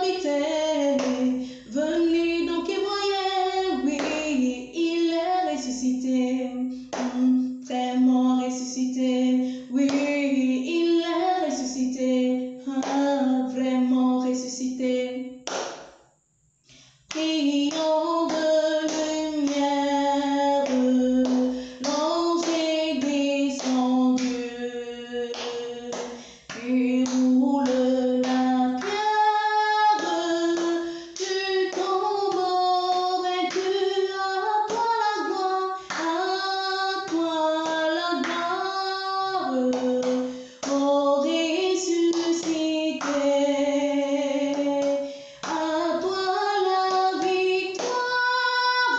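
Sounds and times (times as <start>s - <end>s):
women singing a hymn: 0.0s - 15.2s, 17.2s - 48.9s
hand claps: 0.8s - 1.3s, 3.9s - 4.4s, 6.9s - 7.4s, 9.8s - 10.2s, 12.8s - 13.1s, 15.4s - 16.0s, 17.1s - 19.7s, 20.6s - 24.5s, 25.3s - 29.0s, 29.9s - 33.8s, 34.7s - 38.7s, 39.4s - 40.9s, 41.9s - 43.3s, 44.4s - 48.2s.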